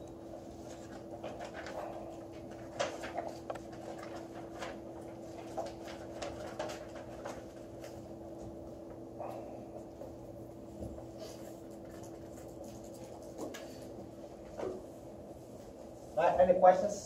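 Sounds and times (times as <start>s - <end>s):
steady low hum: 0.0s - 17.0s
paper rustling: 0.3s - 8.5s, 10.8s - 14.1s.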